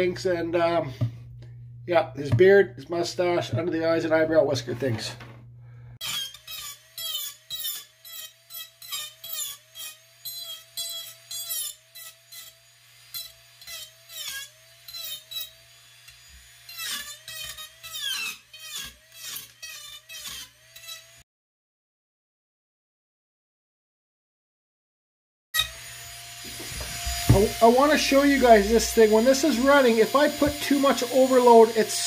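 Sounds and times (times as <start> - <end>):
cutter scratching wood: 6.0 - 21.2, 25.6 - 32.0
rotary carving tool whining: 6.0 - 21.2, 25.6 - 32.0.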